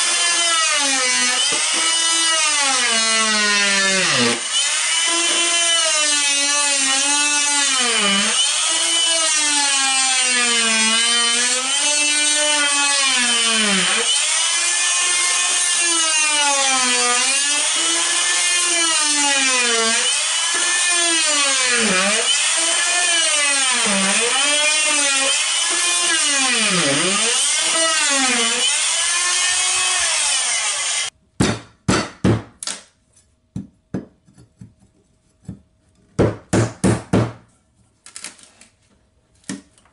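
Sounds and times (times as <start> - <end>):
jigsaw cutting wood: 0.0 - 31.1.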